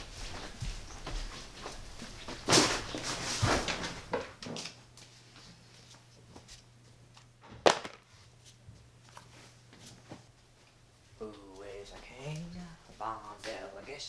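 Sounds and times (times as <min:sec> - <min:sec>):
light footsteps: 0:00.0 - 0:04.2.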